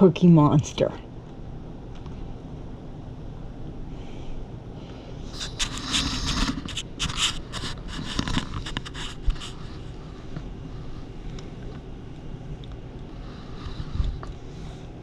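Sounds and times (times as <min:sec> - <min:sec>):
raccoons scraping plastic plates: 0:05.4 - 0:09.4.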